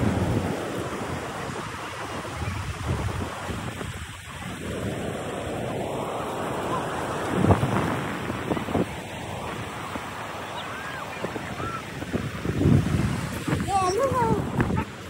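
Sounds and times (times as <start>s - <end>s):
surf washing on shore: 0.0s - 15.0s
wind buffeting microphone: 0.0s - 15.0s.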